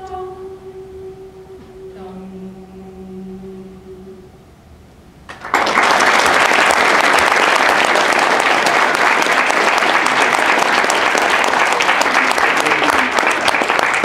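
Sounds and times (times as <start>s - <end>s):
audience applauding: 5.3s - 14.0s.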